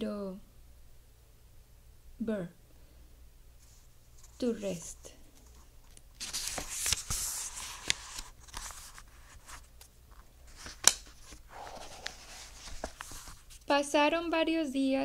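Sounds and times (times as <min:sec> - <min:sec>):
book pages turning: 0:03.6 - 0:13.7.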